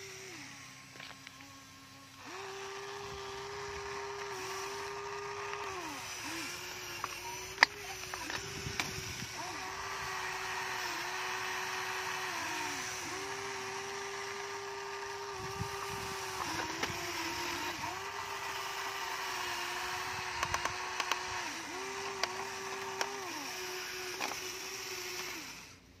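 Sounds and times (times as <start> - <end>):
toy excavator motors whining: 0.0 - 26.0
sharp clicks: 4.1 - 9.3, 20.2 - 23.4.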